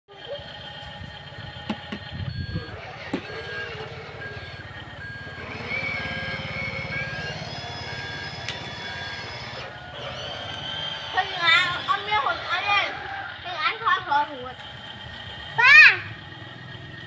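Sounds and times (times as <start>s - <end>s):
toy truck engine sound effect: 0.1s - 17.0s
reversing beeper: 2.1s - 13.2s.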